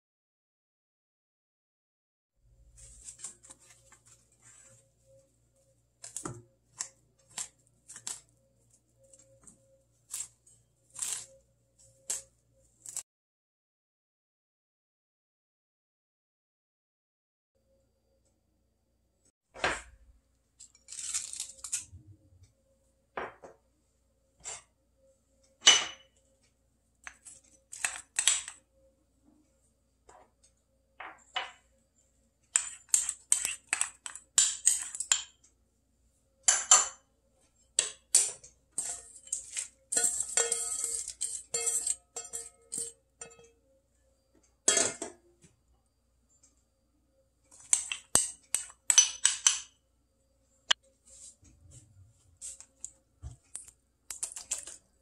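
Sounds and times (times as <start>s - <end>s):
utensils clinking and scraping: 37.8s - 43.5s, 52.4s - 54.8s.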